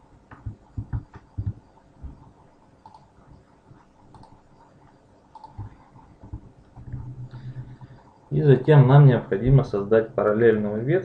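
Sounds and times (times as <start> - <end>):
keyboard and mouse clicking: 0.3 - 2.2, 2.8 - 3.1, 4.1 - 7.4.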